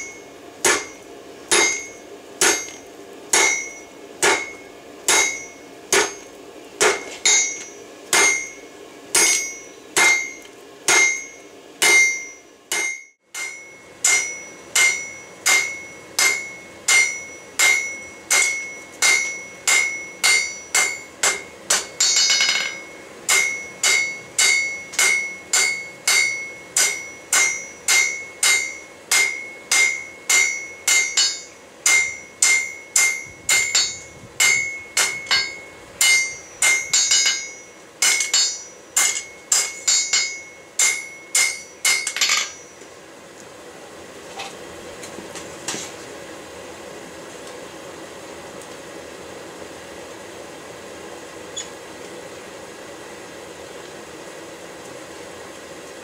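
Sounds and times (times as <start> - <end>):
hammer ringing on anvil: 0.0 - 42.8.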